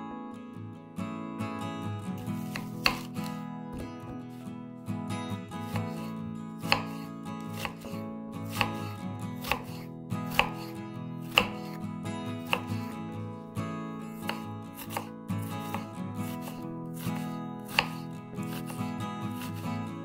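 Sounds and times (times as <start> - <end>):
soft music: 0.0 - 20.0
knife slicing onion: 2.2 - 4.5, 5.6 - 13.1, 14.1 - 20.0.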